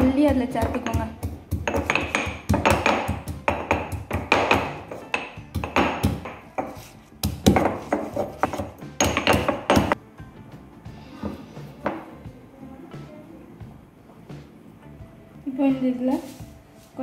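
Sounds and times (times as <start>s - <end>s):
stone pestle pounding in mortar: 0.0s - 10.0s.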